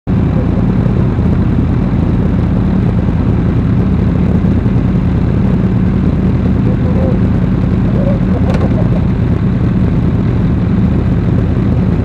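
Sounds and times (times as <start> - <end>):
motorcycle engine idling: 5.4 - 9.4.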